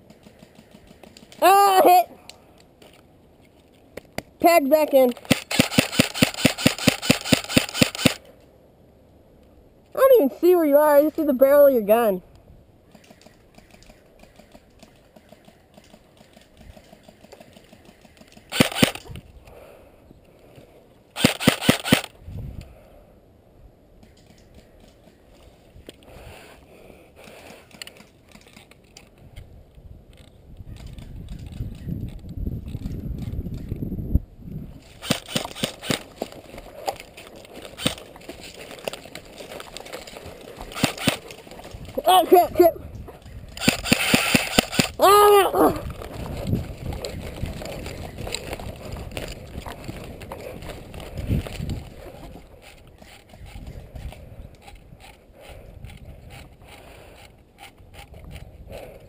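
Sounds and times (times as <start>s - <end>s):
airsoft rifle shots: 5.2s - 8.2s, 16.8s - 19.1s, 21.2s - 22.1s, 40.7s - 41.2s, 43.6s - 45.0s.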